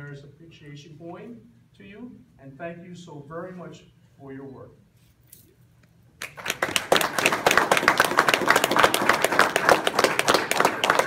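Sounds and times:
audience applauding: 6.2s - 11.0s.

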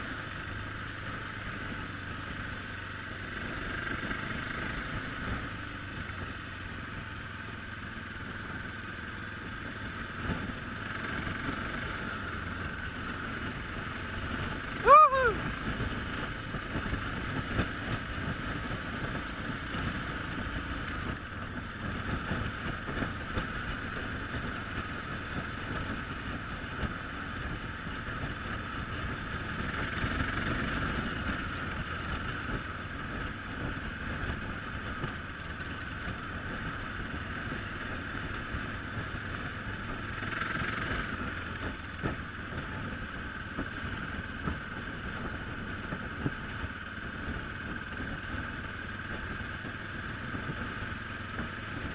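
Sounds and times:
dirt bike engine running: 0.0s - 51.9s.

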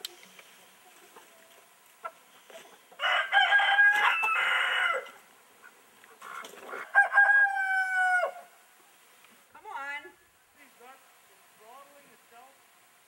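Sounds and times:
rooster crowing: 3.0s - 5.2s, 6.8s - 8.6s.

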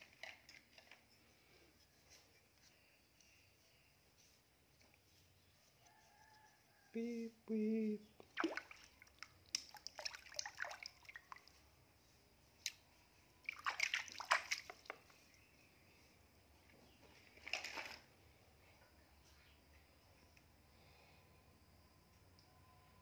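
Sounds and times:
water splashing in a basin: 8.2s - 11.6s, 13.4s - 15.1s, 17.4s - 18.1s.

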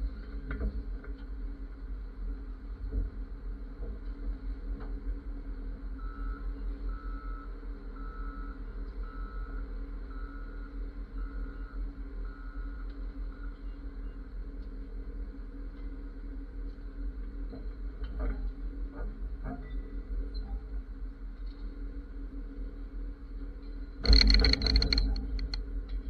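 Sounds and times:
diesel engine running: 22.3s - 26.0s.

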